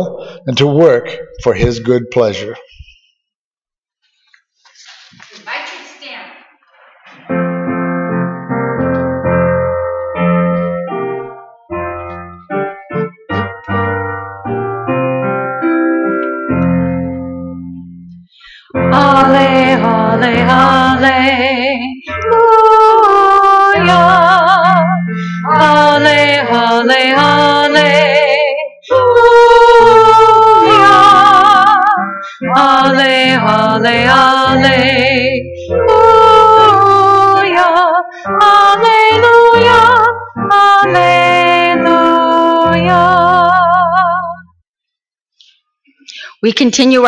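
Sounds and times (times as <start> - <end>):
person speaking: 0.4 - 3.0
instrumental accompaniment: 7.1 - 28.4
woman singing with vibrato: 18.6 - 44.5.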